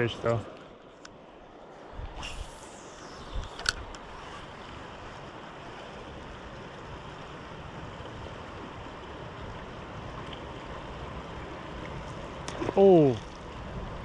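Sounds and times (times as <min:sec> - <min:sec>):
river water rushing over stones: 0:03.8 - 0:14.0.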